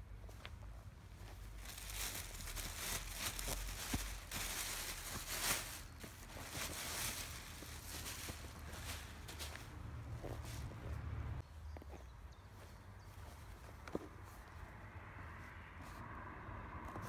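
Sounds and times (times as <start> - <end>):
plastic bag rustling: 1.6 - 9.7.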